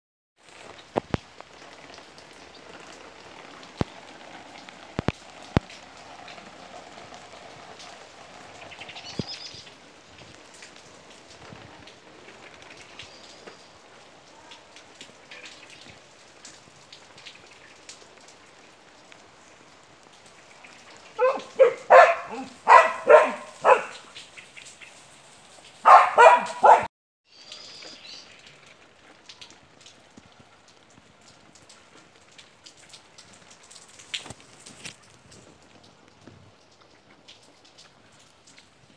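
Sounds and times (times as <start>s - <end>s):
light rain patter: 0.4s - 38.9s
dog barking: 21.2s - 24.1s, 25.8s - 26.9s.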